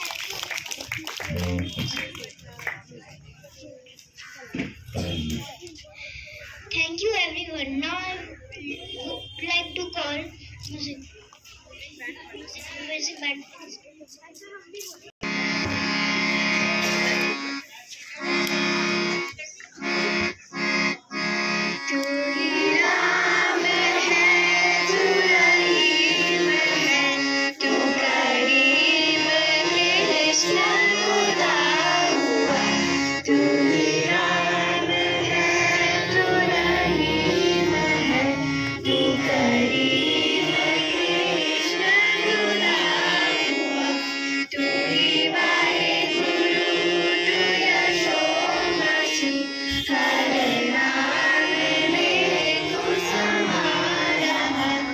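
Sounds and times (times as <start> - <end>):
harmonium: 1.3 - 13.4, 14.9 - 54.9
children singing: 22.0 - 54.9.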